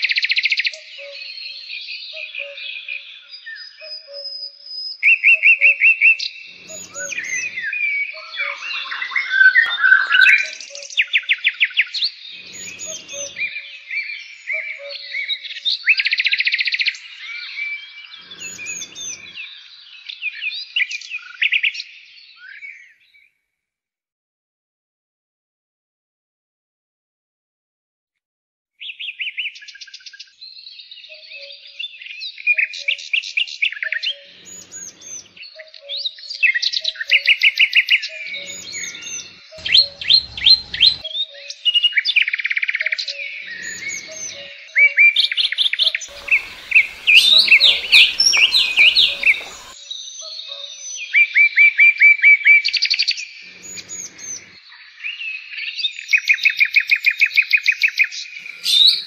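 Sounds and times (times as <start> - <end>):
songbirds singing: 0.0 - 23.3, 28.8 - 59.0
faint rushing noise: 38.5 - 41.0, 46.1 - 49.8.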